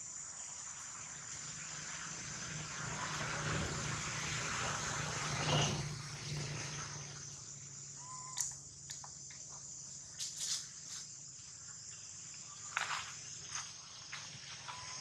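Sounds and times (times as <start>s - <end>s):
insects droning: 0.0s - 15.0s
rustling of leaves and bark: 9.2s - 15.0s.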